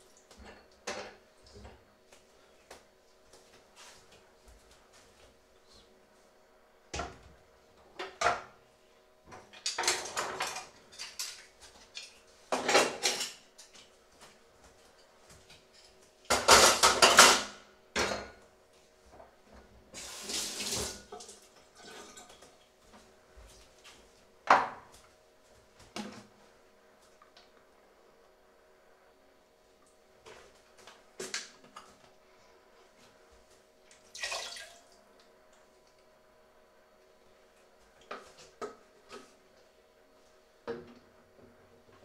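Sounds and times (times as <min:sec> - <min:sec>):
water running from tap: 0:20.0 - 0:21.1, 0:34.2 - 0:34.8.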